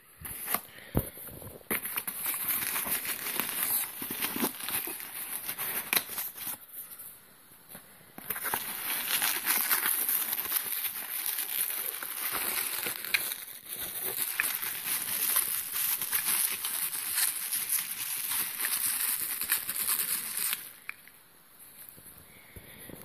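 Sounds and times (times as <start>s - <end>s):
bubble wrap crinkling: 0.2s - 6.8s, 8.2s - 21.1s
cardboard rustling and scraping: 1.2s - 6.6s.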